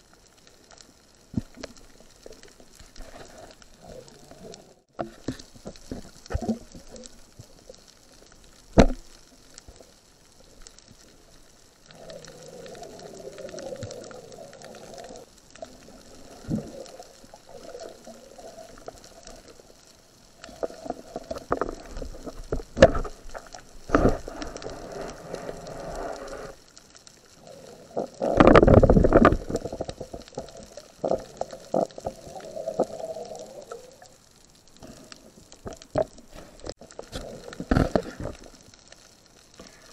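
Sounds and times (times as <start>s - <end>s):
water sloshing and bubbling: 0.0s - 39.9s.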